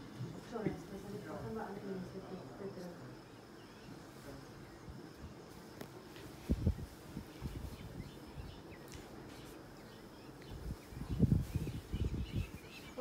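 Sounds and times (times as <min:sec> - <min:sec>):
footsteps in wood-shaving bedding: 0:05.5 - 0:08.2.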